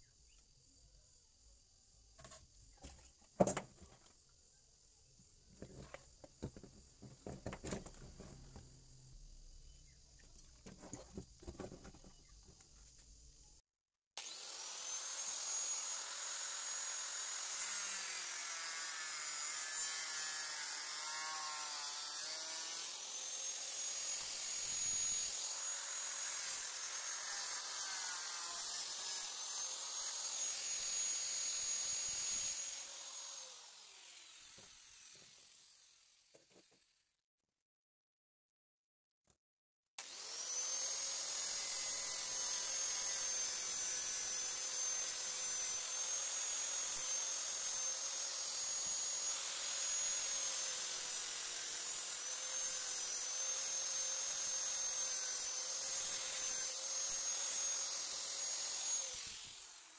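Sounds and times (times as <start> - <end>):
angle grinder whining: 14.2 - 36.3, 40.0 - 59.9.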